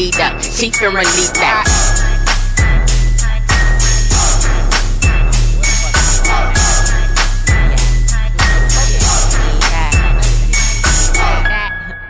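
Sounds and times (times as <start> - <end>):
deep bass notes: 0.0 - 12.0
instrumental hip-hop beat: 0.0 - 12.0.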